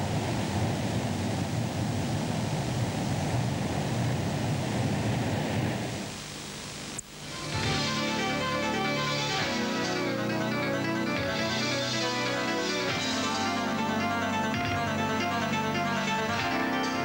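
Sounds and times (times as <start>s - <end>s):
rushing outdoor noise with rumble: 0.0s - 13.1s.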